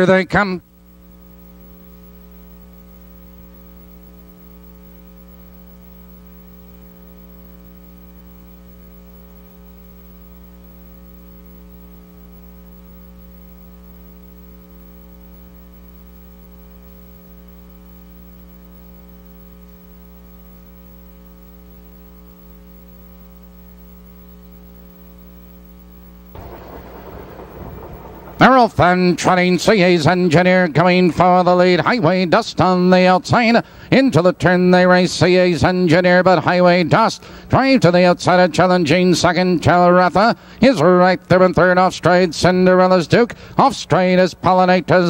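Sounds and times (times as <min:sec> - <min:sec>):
electrical mains hum: 0:00.0 - 0:45.0.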